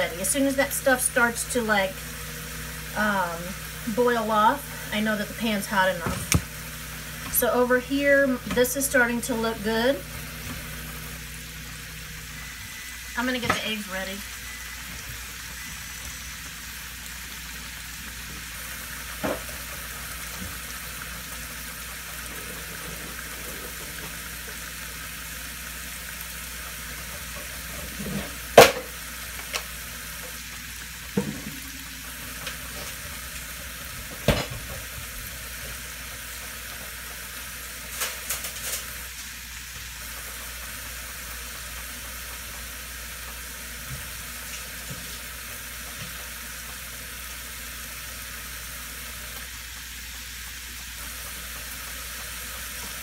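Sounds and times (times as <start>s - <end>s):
vegetables sizzling in frying pan: 0.0s - 53.0s.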